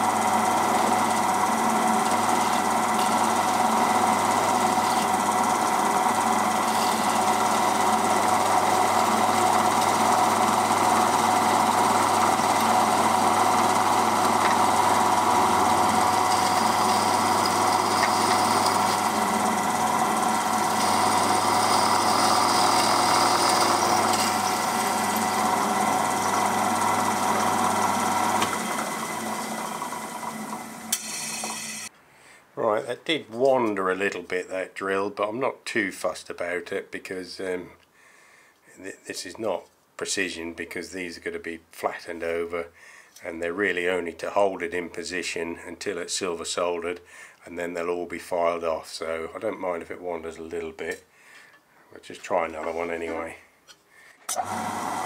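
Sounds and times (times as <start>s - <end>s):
drill press drilling metal: 0.0s - 31.9s, 54.3s - 55.0s.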